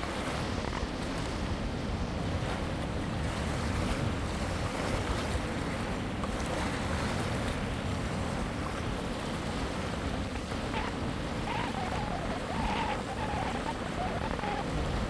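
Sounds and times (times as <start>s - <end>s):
ocean surf breaking: 0.0s - 15.0s
wind buffeting microphone: 0.0s - 15.0s.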